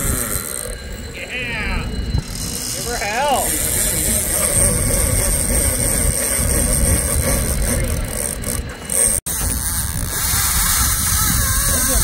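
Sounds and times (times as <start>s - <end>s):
boat engines rumbling: 0.0s - 12.0s.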